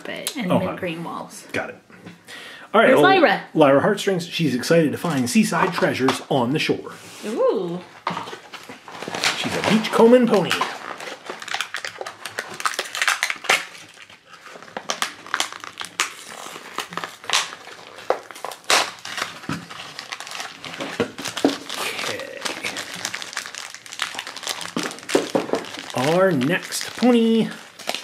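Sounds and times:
plastic packaging crinkling: 8.1s - 28.0s.

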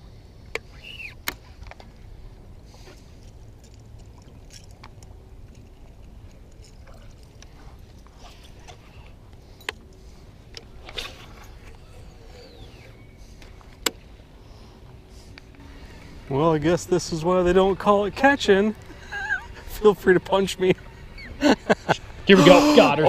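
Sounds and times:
low rumble of wind and water: 0.0s - 23.0s
fishing lure cast swish: 10.8s - 11.5s.

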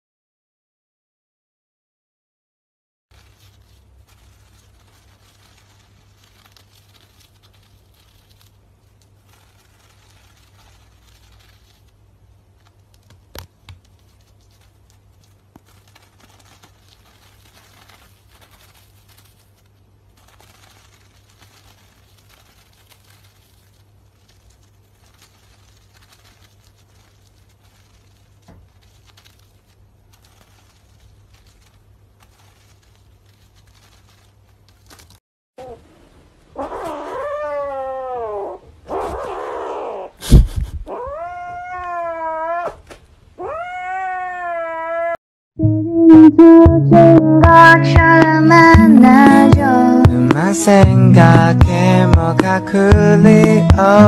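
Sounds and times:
papery rustling and crinkling: 3.1s - 35.8s.

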